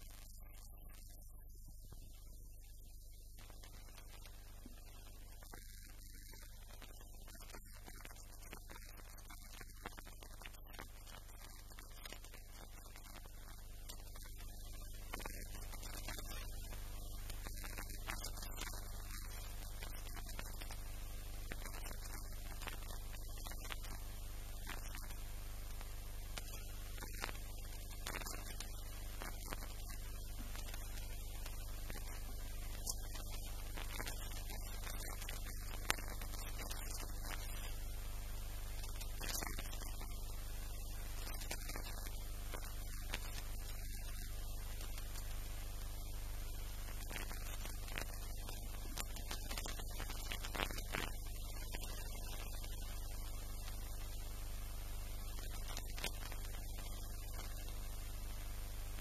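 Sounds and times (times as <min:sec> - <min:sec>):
steady low hum: 0:00.0 - 0:59.0
faint clicks: 0:24.6 - 0:37.8.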